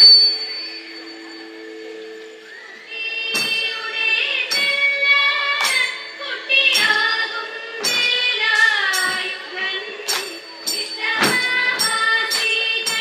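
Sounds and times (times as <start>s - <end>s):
woman singing: 2.9s - 13.0s.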